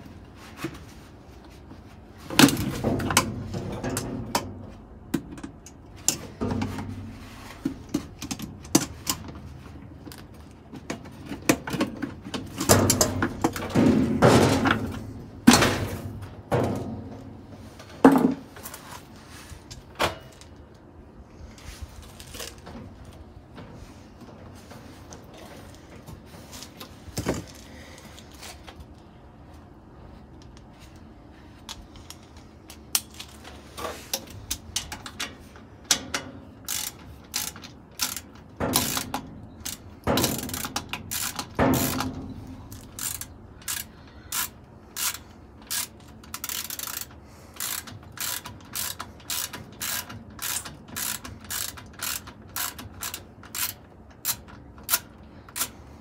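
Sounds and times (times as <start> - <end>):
heavy metal clunks: 11.5 - 18.5
ratchet tool clicking: 36.6 - 55.8.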